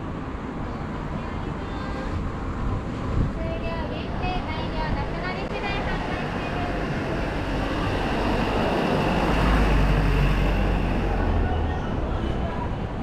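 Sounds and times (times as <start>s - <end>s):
general traffic noise: 0.0s - 13.0s.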